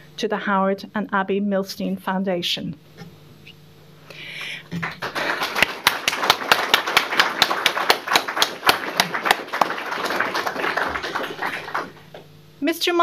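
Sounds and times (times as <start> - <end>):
small audience applauding: 4.4 - 12.2.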